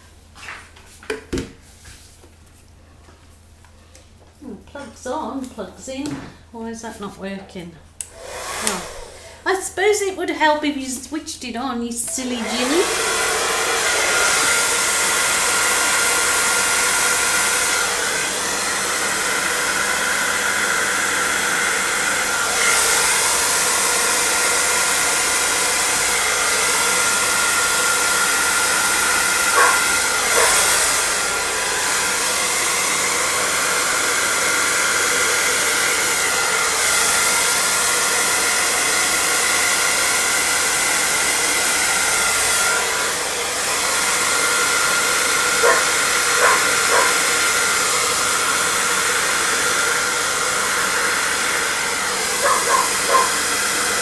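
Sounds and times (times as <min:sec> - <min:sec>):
hairdryer blowing air: 0:08.0 - 0:10.0, 0:12.0 - 0:54.0.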